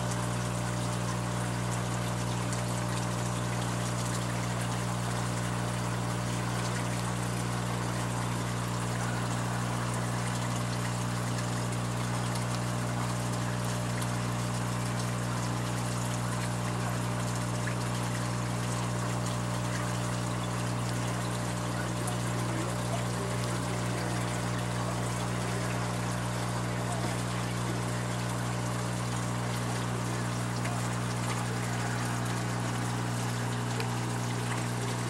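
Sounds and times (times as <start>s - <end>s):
water trickling: 0.0s - 35.0s
low filter hum: 19.7s - 35.0s.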